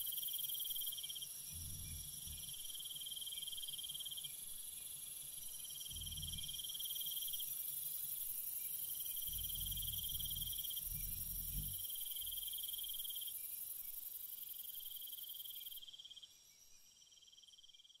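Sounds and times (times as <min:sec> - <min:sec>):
insects buzzing: 0:00.0 - 0:17.8
shrill insect trill: 0:00.0 - 0:18.0
low rumble: 0:09.3 - 0:11.8.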